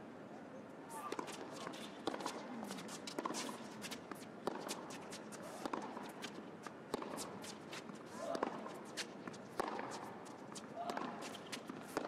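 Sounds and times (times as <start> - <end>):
shoes squeaking on court: 0.9 - 7.8
racket striking tennis ball: 6.9 - 7.4, 9.5 - 10.1.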